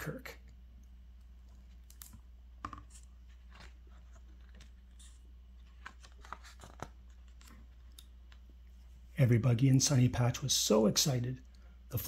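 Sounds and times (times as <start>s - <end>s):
low steady hum: 0.0s - 12.0s
book pages turning: 1.5s - 8.5s.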